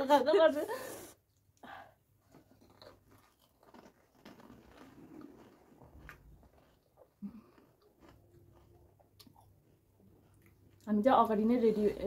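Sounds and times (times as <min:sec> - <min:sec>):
crunching and chewing: 0:02.2 - 0:11.0.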